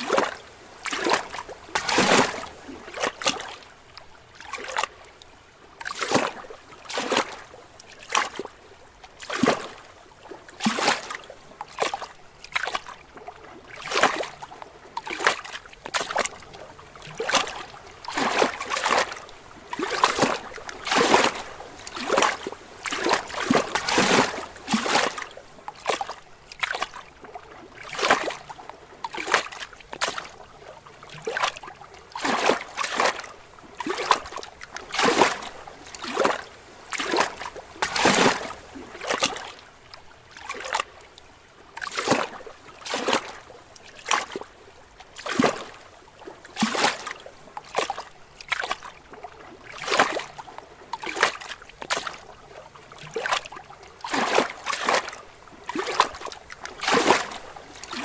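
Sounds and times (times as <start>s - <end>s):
lake waves splashing against rocks: 0.0s - 3.6s, 17.0s - 27.0s, 31.1s - 39.6s, 54.0s - 58.0s.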